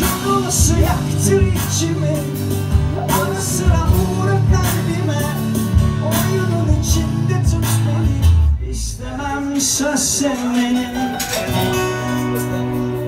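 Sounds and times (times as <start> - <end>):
strummed acoustic guitar: 0.0 - 8.6, 10.0 - 13.0
keyboard: 10.0 - 13.0.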